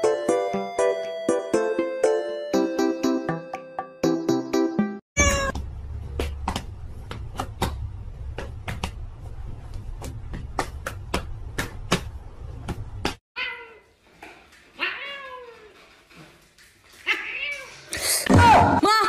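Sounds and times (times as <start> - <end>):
cat meowing: 5.2 - 5.6, 14.8 - 15.7.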